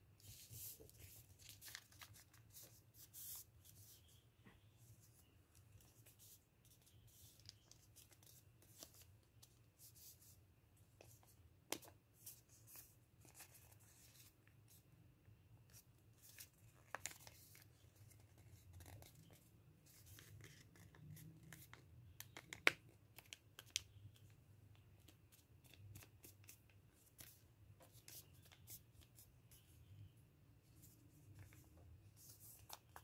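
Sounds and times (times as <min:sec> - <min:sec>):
paper rustling and crinkling: 0:00.3 - 0:02.7.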